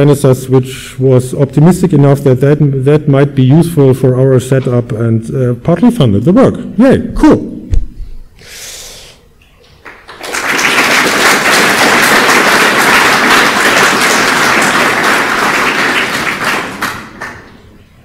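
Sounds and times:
audience applauding: 0:09.8 - 0:17.6.

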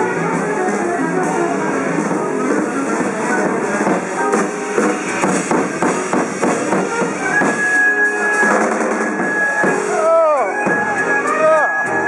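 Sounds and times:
jazz band playing: 0:00.0 - 0:12.0.

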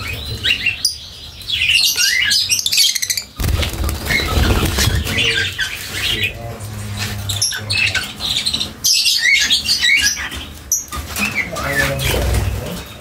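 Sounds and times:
birds squawking and chirping: 0:00.0 - 0:13.0.

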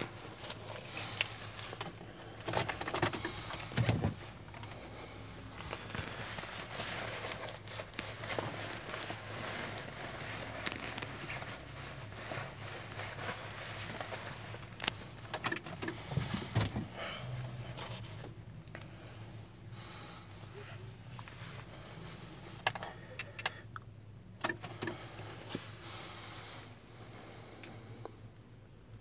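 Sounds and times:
small clicks and rustles: 0:00.0 - 0:04.8, 0:05.5 - 0:16.8.

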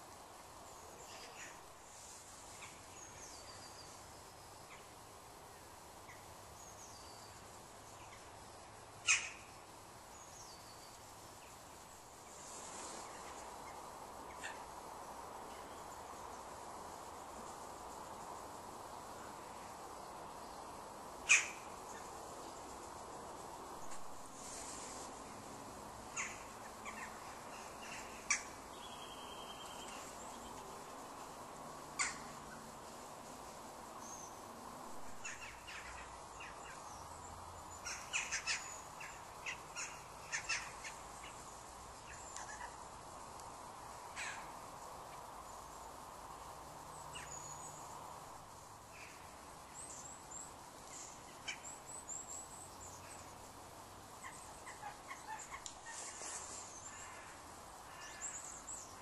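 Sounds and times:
steady background noise: 0:00.0 - 0:59.0
birds calling: 0:09.0 - 0:09.6, 0:21.2 - 0:22.6, 0:26.1 - 0:31.0, 0:31.9 - 0:32.8, 0:35.1 - 0:42.9.

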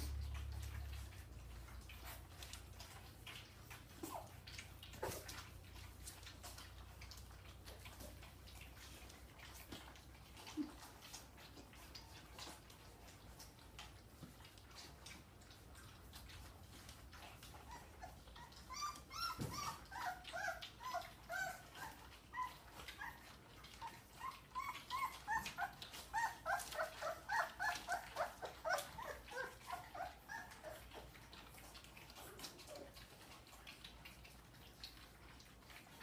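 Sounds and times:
puppies whining and squeaking: 0:00.0 - 0:36.0
wet lapping and smacking: 0:00.0 - 0:36.0.

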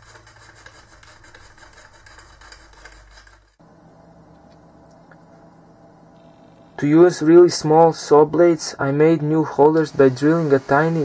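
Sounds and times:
low hum: 0:02.9 - 0:10.5.

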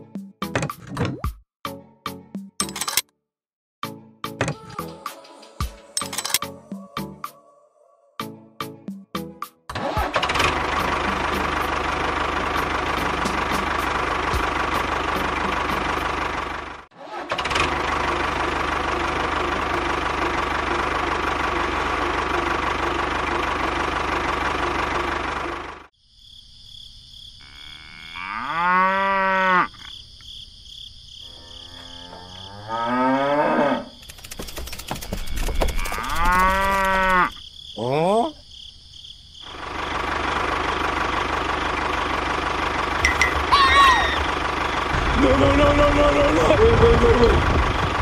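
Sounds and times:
tractor engine running: 0:05.9 - 0:06.5, 0:09.8 - 0:25.9, 0:34.0 - 0:37.4, 0:39.4 - 0:48.0
cow mooing: 0:27.4 - 0:29.8, 0:31.2 - 0:34.0, 0:35.7 - 0:37.4.

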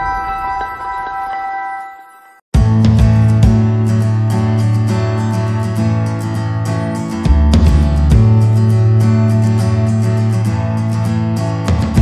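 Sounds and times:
deep bass part: 0:02.6 - 0:05.2, 0:07.2 - 0:10.0
background music with beat: 0:02.6 - 0:06.0, 0:06.6 - 0:10.4, 0:11.6 - 0:12.0.

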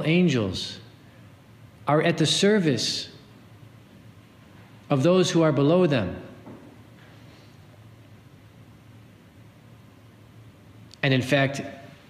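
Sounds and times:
low steady hum: 0:00.0 - 0:12.0
man speaking: 0:04.9 - 0:06.3, 0:11.0 - 0:12.0.

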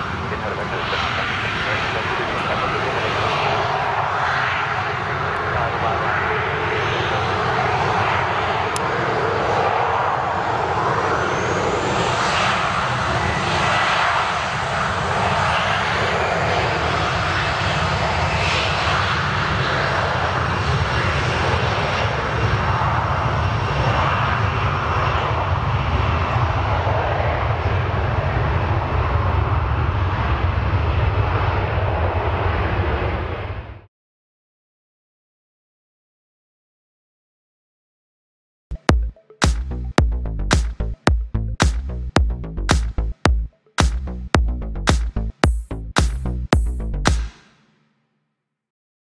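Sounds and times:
high engine whine: 0:00.0 - 0:32.2, 0:38.7 - 0:48.0
jet engines at takeoff power: 0:00.0 - 0:33.9.

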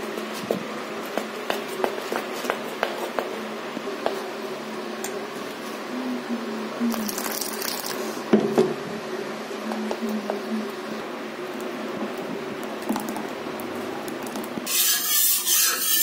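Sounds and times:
water pouring: 0:06.9 - 0:08.1
batter squishing as stirred: 0:06.9 - 0:08.2.

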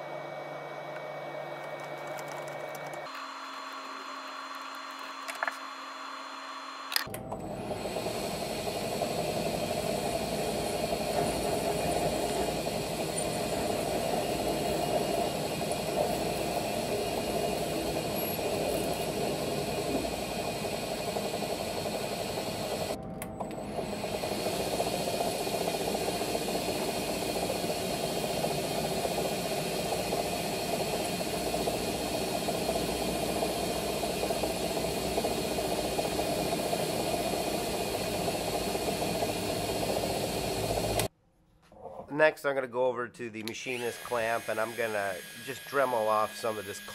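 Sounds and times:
metal lathe running: 0:00.0 - 0:41.1, 0:43.6 - 0:46.9
tool bit cutting metal: 0:43.5 - 0:46.9.

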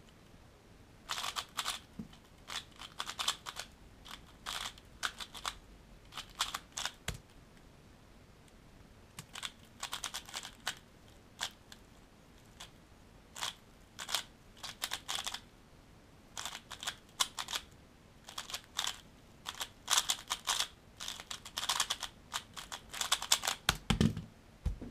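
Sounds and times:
plastic puzzle cube clicking: 0:01.1 - 0:07.2, 0:09.2 - 0:10.8, 0:11.4 - 0:11.6, 0:13.4 - 0:15.4, 0:16.4 - 0:17.7, 0:18.3 - 0:24.0.

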